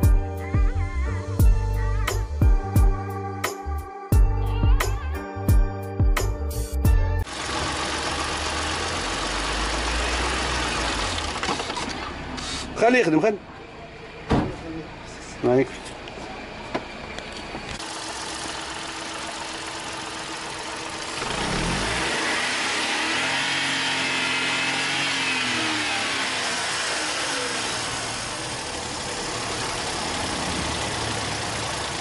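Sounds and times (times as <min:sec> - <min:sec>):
car engine idling and revving: 0:06.6 - 0:32.0.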